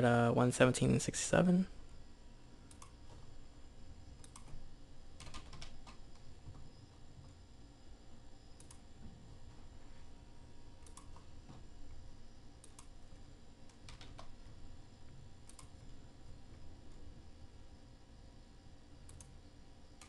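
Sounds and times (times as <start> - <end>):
mouse and keyboard clicks: 4.2 - 4.6, 19.1 - 19.3.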